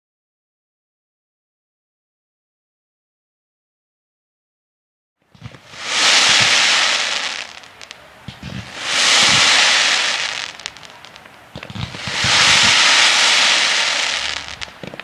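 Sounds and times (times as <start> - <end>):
fireworks crackling: 5.4 - 15.0
fireworks popping: 5.4 - 15.0
low thuds: 11.6 - 13.3.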